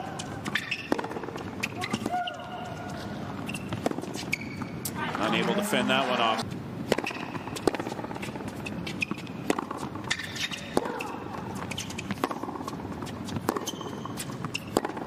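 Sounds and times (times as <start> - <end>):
racket hitting tennis ball: 0.0 - 6.2, 6.8 - 15.0
shoe squeaks on court: 0.2 - 5.0, 7.1 - 12.2, 13.0 - 15.0
ball bouncing on court: 0.2 - 5.5, 6.9 - 15.0.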